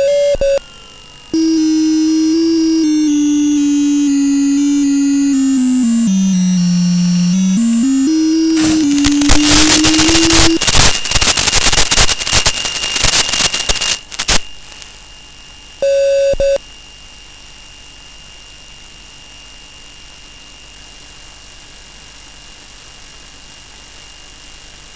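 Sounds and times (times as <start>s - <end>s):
faint high whine: 0.0s - 15.1s
steady hiss: 1.4s - 10.9s
rushing crackling noise: 1.4s - 12.5s.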